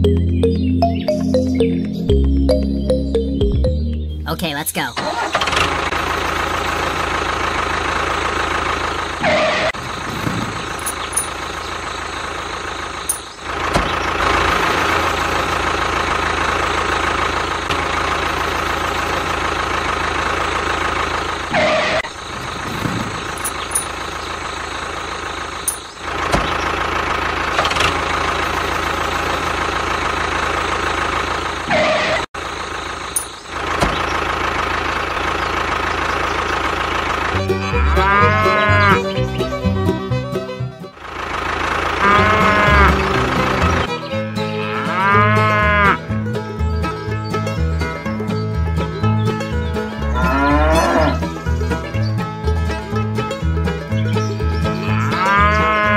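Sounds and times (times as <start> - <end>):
tractor engine running: 0.0 - 55.9.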